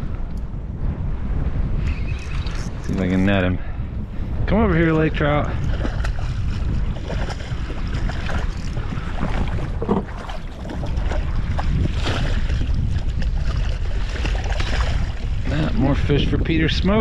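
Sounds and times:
wind on microphone: 0.0s - 17.0s
lapping water: 5.4s - 15.8s
fish splashing: 5.6s - 15.4s.

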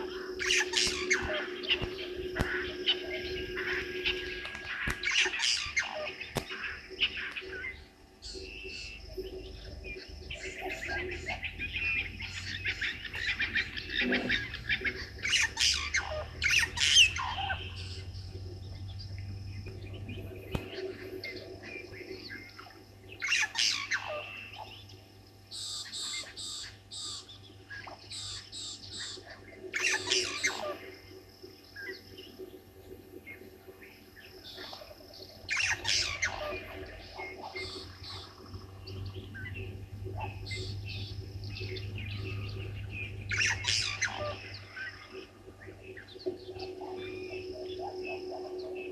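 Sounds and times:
birds squawking harshly: 0.0s - 7.9s, 10.4s - 18.0s, 25.5s - 31.0s, 35.5s - 38.5s, 43.2s - 45.3s.

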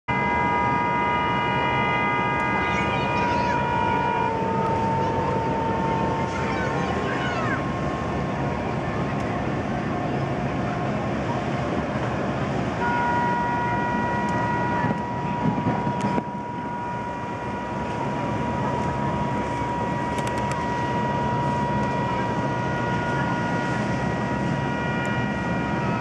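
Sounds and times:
long high horn: 0.1s - 26.0s
low boat horns: 0.1s - 26.0s.

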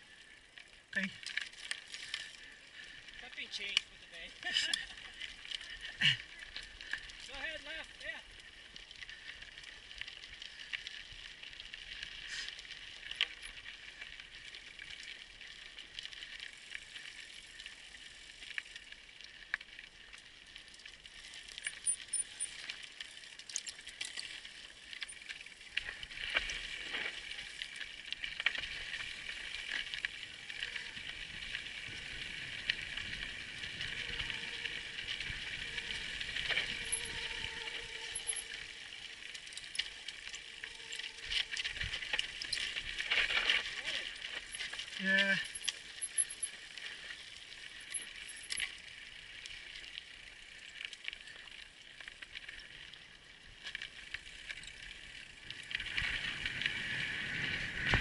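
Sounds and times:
bike frame rattling and clicking: 21.6s - 24.4s, 36.5s - 38.6s, 45.4s - 46.6s, 47.8s - 48.7s.

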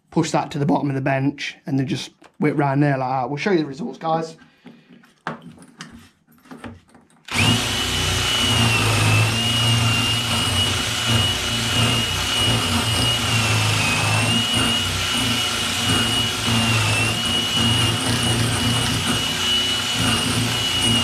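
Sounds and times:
drill spinning wire brush: 7.3s - 21.0s.

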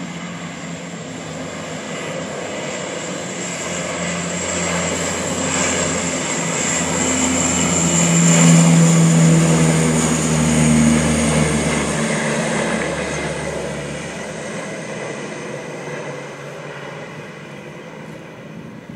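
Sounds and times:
propeller plane drone: 0.0s - 18.9s.

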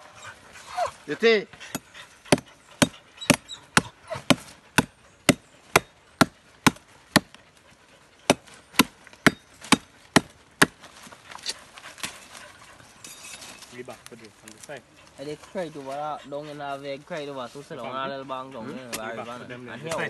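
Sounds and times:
machete chopping into log: 8.3s - 10.8s.

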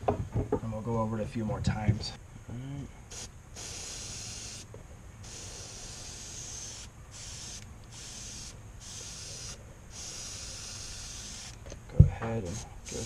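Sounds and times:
airbrush hissing bursts: 3.1s - 11.6s, 12.4s - 13.0s.

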